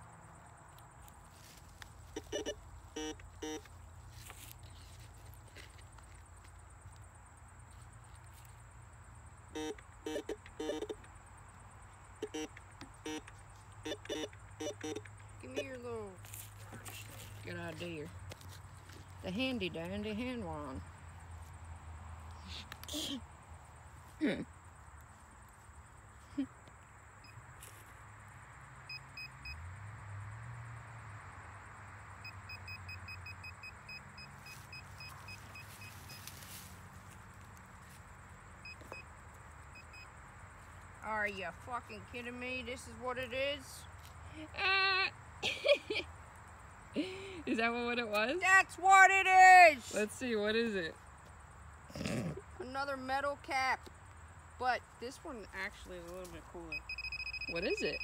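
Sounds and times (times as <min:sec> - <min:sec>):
metal detector beeping: 0:02.2 - 0:03.7, 0:09.6 - 0:11.1, 0:12.2 - 0:15.8, 0:32.2 - 0:36.3, 0:56.7 - 0:58.0.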